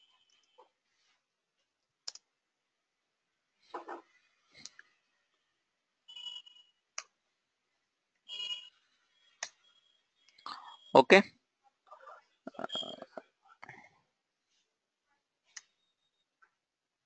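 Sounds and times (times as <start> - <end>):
keyboard and mouse clicks: 2.0 - 2.3.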